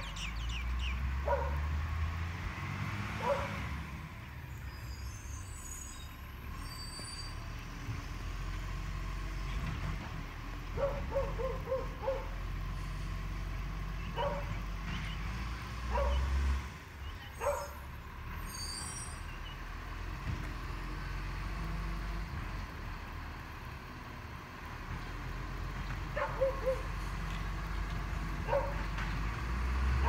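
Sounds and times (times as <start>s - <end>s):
truck engine running: 0.0s - 4.7s, 7.5s - 18.5s, 19.3s - 30.0s
dog barking: 1.2s - 1.6s, 3.2s - 3.6s, 10.8s - 12.4s, 14.2s - 14.6s, 15.9s - 16.2s, 17.4s - 17.8s, 26.2s - 26.9s, 28.4s - 28.9s.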